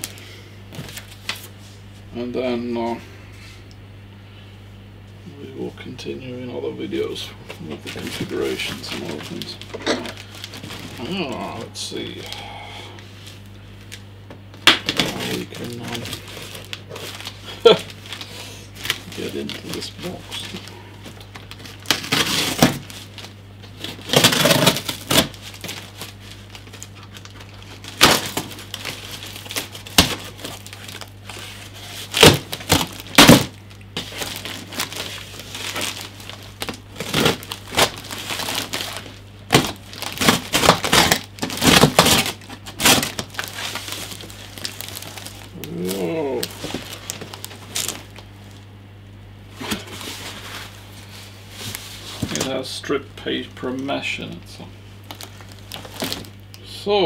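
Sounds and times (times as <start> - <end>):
cardboard tearing: 7.9 - 11.6, 14.8 - 48.2, 55.1 - 56.3
packing tape being slit: 14.6 - 48.2, 55.0 - 56.4.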